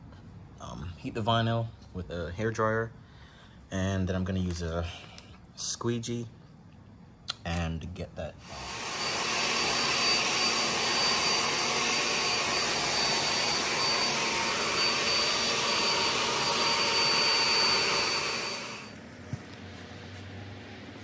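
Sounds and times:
hair dryer blowing: 8.4s - 21.0s.

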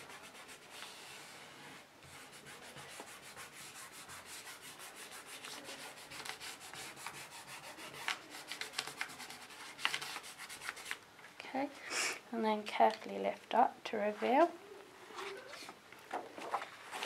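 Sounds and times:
fingers rubbing on paper: 0.0s - 11.0s.

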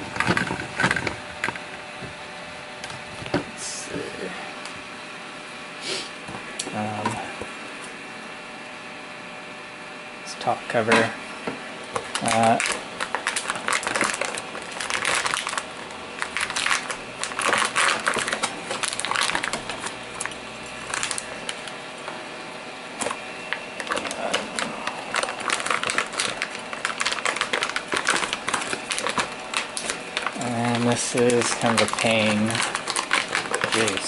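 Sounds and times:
plastic bag crinkling: 11.9s - 21.8s, 23.0s - 34.0s.

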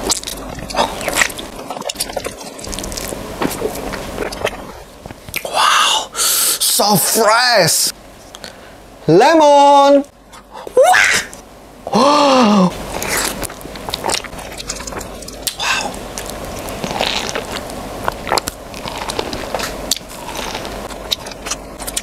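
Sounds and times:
chewing a lemon wedge: 0.0s - 4.6s, 12.9s - 22.0s
vocal exclamation: 11.9s - 12.8s.

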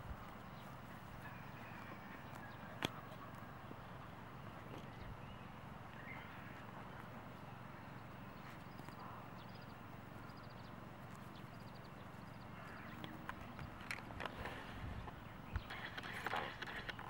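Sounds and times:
low wind rumble: 0.0s - 17.0s
quick high chirping ticks: 15.5s - 17.0s.

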